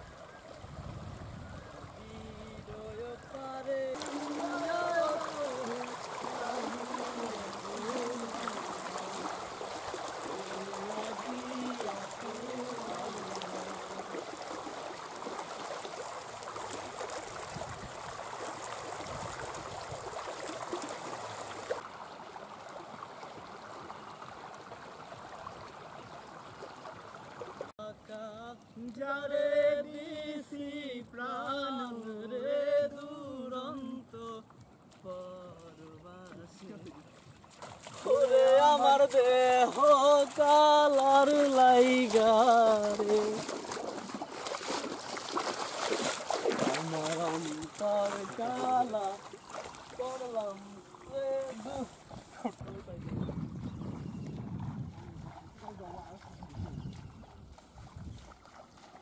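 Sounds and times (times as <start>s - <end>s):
river water rushing and gurgling: 0.0s - 28.0s, 34.0s - 52.9s, 54.4s - 59.0s
person singing or speaking: 10.4s - 14.2s, 46.8s - 49.2s, 50.0s - 52.0s
person's voice: 46.7s - 49.2s, 50.0s - 51.9s, 55.0s - 56.6s.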